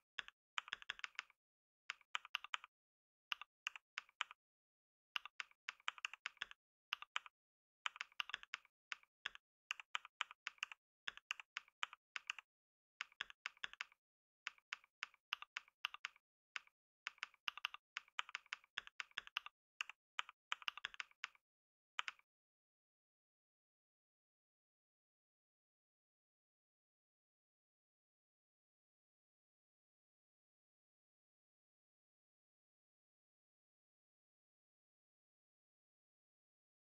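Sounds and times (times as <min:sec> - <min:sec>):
computer keyboard typing: 0:00.0 - 0:02.7, 0:03.3 - 0:04.4, 0:05.2 - 0:07.3, 0:07.9 - 0:21.4, 0:22.0 - 0:22.2.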